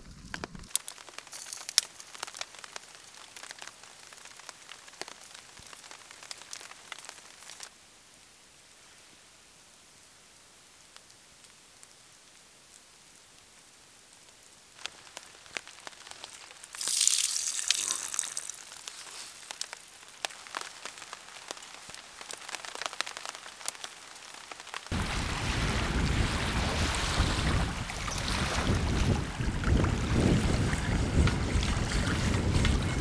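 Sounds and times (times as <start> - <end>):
raindrops pattering in forest: 0.0 - 26.0
waves washing on rocky shore: 24.9 - 30.4
wind buffeting microphone: 24.9 - 33.0.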